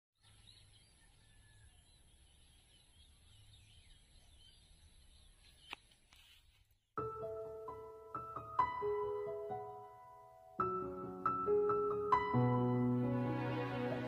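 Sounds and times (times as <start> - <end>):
small birds chirping: 0.2 - 6.9.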